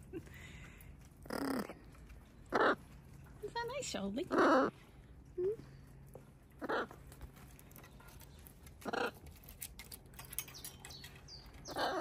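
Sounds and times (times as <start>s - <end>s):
macaw squawking: 11.7s - 12.0s.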